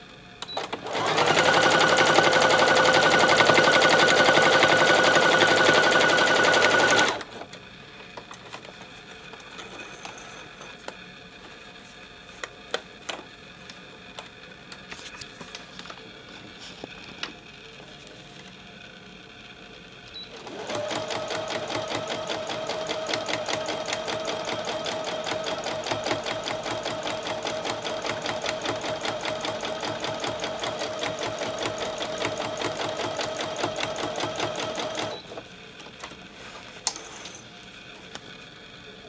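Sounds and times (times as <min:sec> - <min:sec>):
sewing machine stitching: 0:00.4 - 0:07.4, 0:20.3 - 0:35.3.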